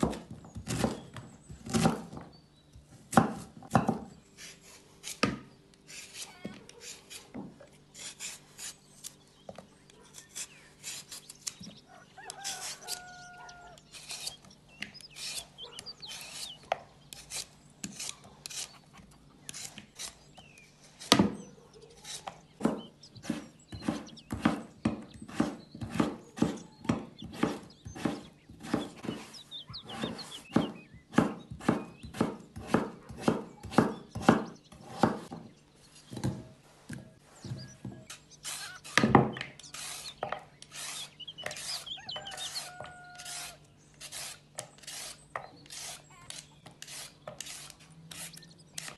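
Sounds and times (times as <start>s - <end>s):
knife chopping on wooden board: 0.0s - 1.0s, 3.1s - 4.1s, 22.2s - 29.3s, 29.9s - 35.4s.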